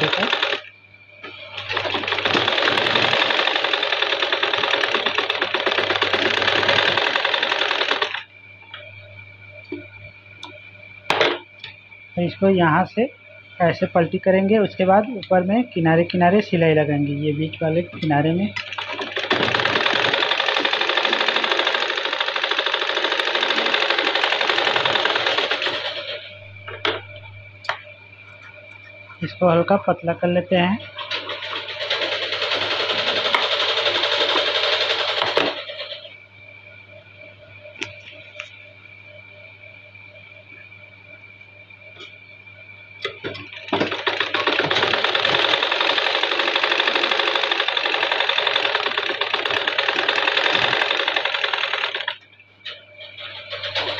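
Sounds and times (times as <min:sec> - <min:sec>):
sewing machine running: 0:00.0 - 0:08.3, 0:17.7 - 0:26.3, 0:31.0 - 0:36.1, 0:43.0 - 0:53.9.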